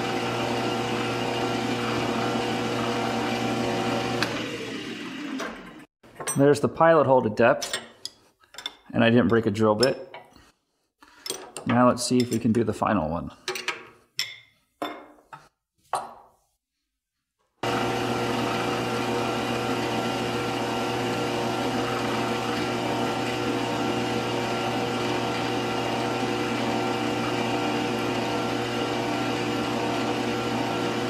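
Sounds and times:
metal lathe drilling hum: 0.0 - 5.8, 17.6 - 31.0.

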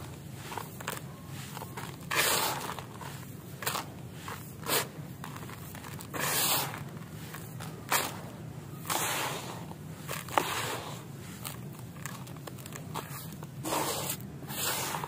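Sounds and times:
concrete grit pouring into bucket: 13.6 - 15.0.

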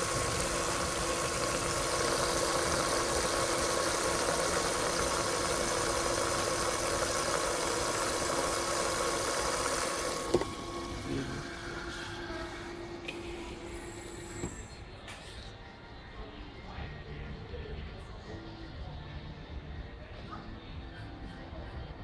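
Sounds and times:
water rushing into drum: 0.0 - 11.8.

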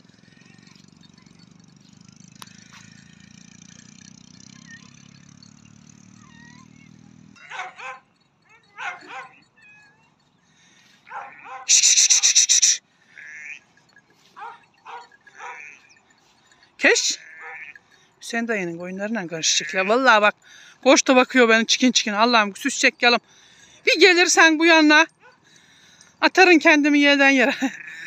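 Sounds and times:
sheep and lambs bleating: 11.1 - 11.6, 13.1 - 13.7, 15.4 - 15.9, 17.2 - 17.8, 19.4 - 20.0, 27.6 - 28.0.

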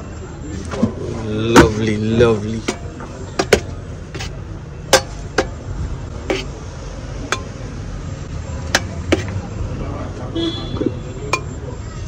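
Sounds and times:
metal spoon clinking on pot: 7.3 - 7.6.

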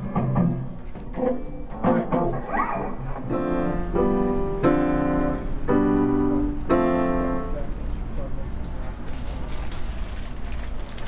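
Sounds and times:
digital piano chords: 0.0 - 8.6.

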